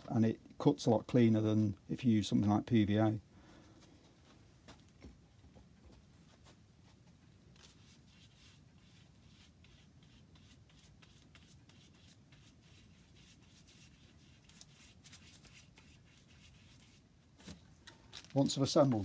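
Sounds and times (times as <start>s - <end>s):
glue brush scratching on veneer: 7.6s - 17.0s.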